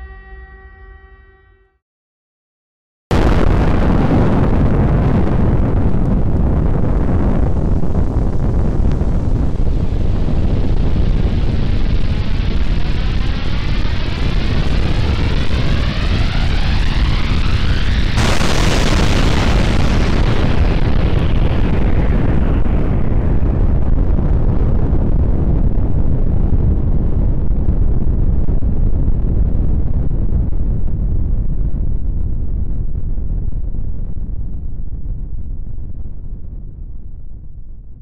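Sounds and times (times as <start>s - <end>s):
explosion blast with hiss: 3.1s - 24.0s
deep continuous rumble: 3.1s - 38.0s.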